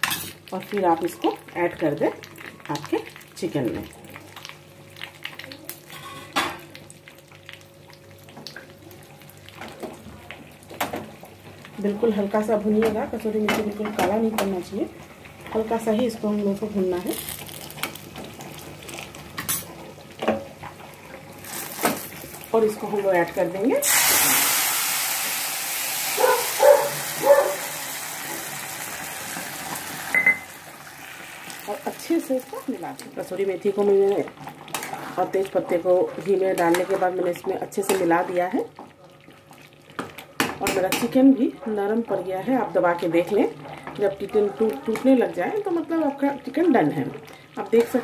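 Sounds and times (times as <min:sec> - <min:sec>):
leaves frying in hot fat: 0:00.0 - 0:48.0
small crackles: 0:17.0 - 0:19.2
dog barking: 0:26.2 - 0:27.8.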